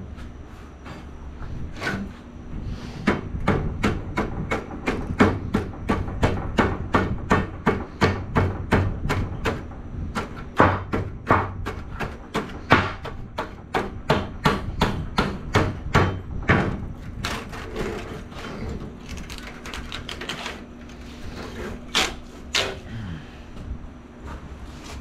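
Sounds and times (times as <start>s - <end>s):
hammer on metal: 10.6s - 16.7s.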